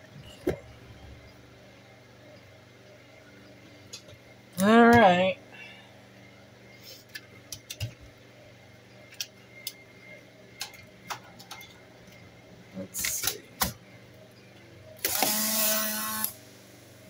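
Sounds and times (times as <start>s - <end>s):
small camera motor whirring: 15.0s - 16.4s.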